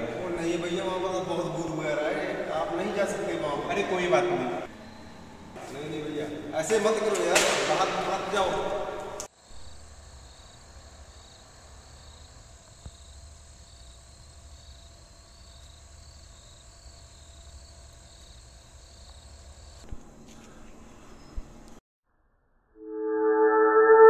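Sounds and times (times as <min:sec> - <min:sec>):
night insects trilling: 0:09.4 - 0:19.8.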